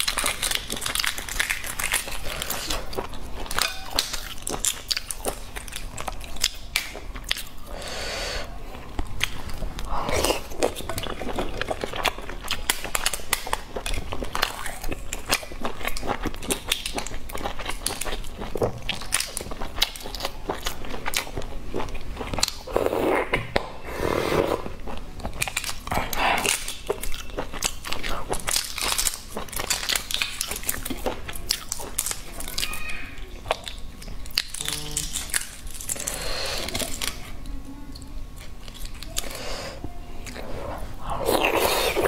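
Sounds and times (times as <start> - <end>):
egg shells cracking and peeling: 0.0 - 7.6, 25.3 - 37.2
close-up chewing: 0.0 - 23.3, 24.4 - 42.0.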